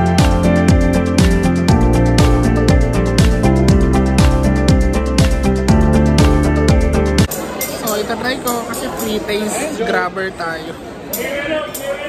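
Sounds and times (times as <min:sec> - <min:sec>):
music with deep drum beat: 0:00.0 - 0:07.3.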